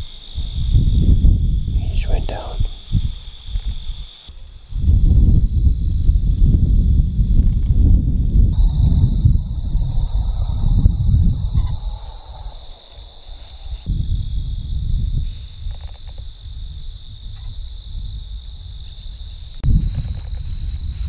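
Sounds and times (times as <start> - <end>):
insects chirping: 0.0 - 21.0
wind rumble: 0.0 - 21.0
dry grass rustling: 19.6 - 21.0.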